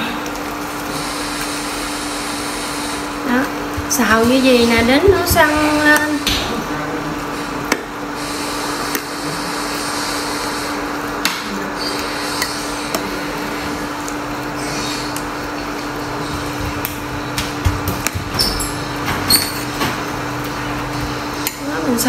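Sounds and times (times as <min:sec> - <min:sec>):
meat sizzling in a pan: 0:00.3 - 0:06.2.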